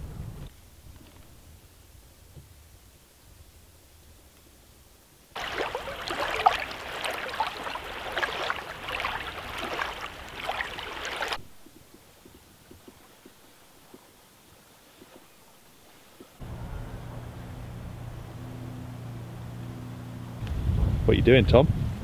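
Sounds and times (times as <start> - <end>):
small waves lapping on shore: 5.4 - 16.4.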